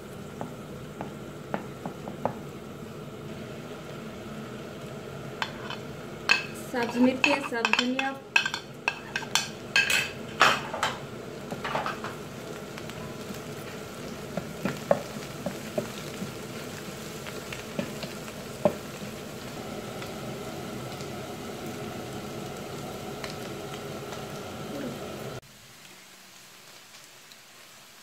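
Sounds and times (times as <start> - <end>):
food sizzling in frying pan: 0.0 - 28.0
spatula scraping a pan: 5.4 - 9.9.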